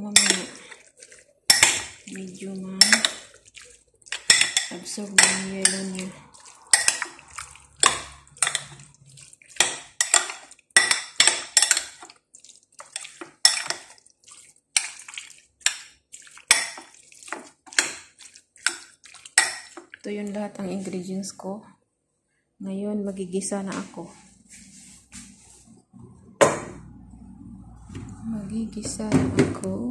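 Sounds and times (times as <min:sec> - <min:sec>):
metal spoon scraping glass bowl: 0:00.1 - 0:00.8, 0:01.5 - 0:03.4, 0:04.1 - 0:12.0.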